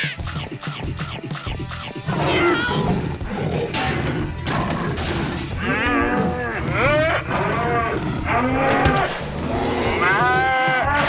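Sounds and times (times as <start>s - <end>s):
cow mooing: 3.7s - 11.0s.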